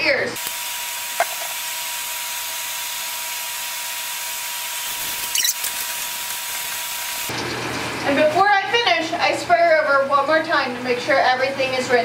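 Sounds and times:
shower sprayer water hissing: 4.8 - 7.3
short squeak: 4.9 - 5.9.

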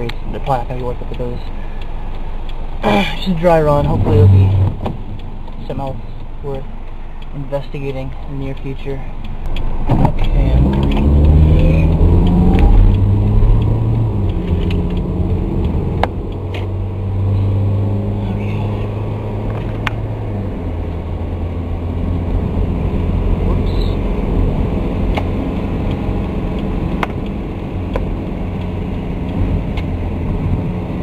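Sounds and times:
sharp clicks: 0.0 - 2.8, 4.6 - 16.8
car engine and tyre drone: 0.0 - 31.0.

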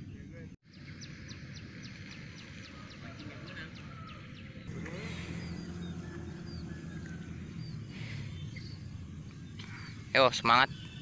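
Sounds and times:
small birds chirping: 0.0 - 11.0
steady low hum: 4.7 - 10.2.

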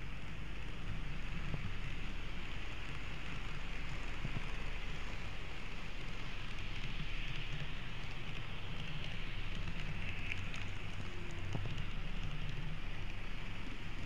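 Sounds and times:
model train whirring: 0.0 - 14.0
faint clicks: 0.8 - 14.0.

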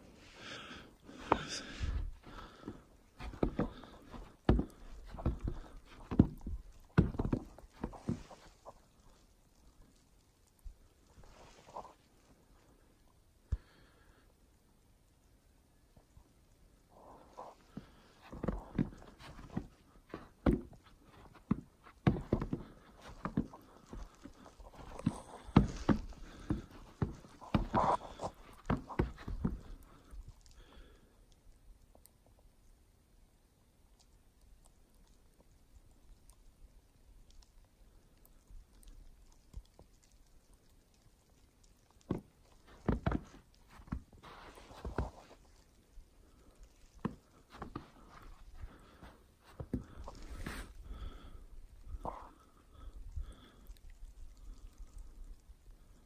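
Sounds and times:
footsteps on snowy plank deck: 0.0 - 9.2, 16.9 - 30.8, 42.0 - 52.5.

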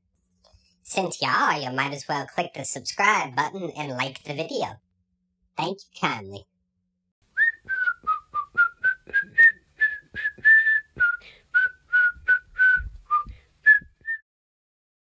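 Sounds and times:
person whistling a tune: 7.4 - 14.2.

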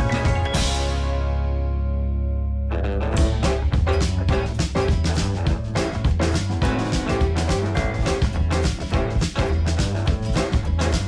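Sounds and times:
drum beat: 3.2 - 11.0.

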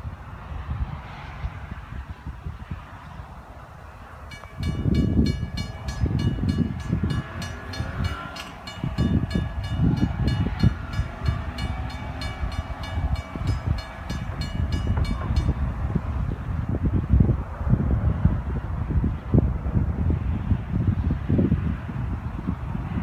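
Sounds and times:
crossing warning bell ringing: 4.2 - 16.2.

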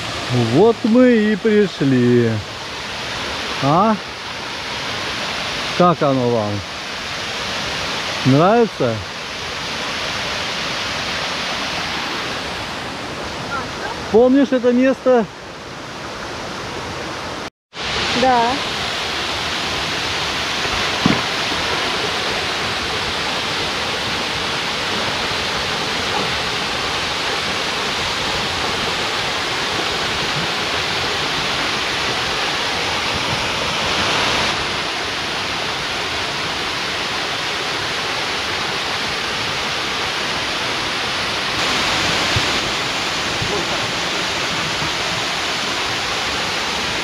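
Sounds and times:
waterfall rushing: 0.0 - 47.0
single knock: 21.0 - 21.3.

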